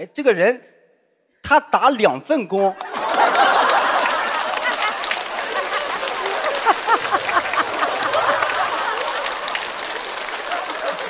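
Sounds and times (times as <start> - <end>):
audience laughing: 2.7 - 11.0
audience applauding: 2.8 - 11.0.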